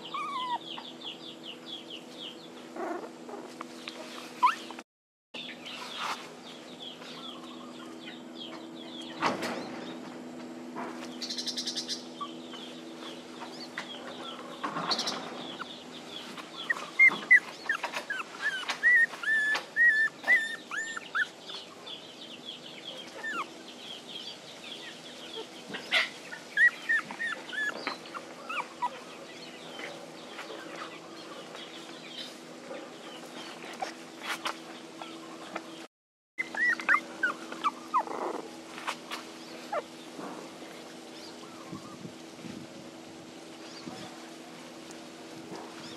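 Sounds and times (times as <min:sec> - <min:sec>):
puppies whimpering: 0:00.0 - 0:01.3, 0:04.3 - 0:04.8, 0:12.1 - 0:12.9, 0:15.2 - 0:22.0, 0:22.9 - 0:24.2, 0:24.8 - 0:32.3, 0:36.4 - 0:40.1, 0:40.8 - 0:42.0.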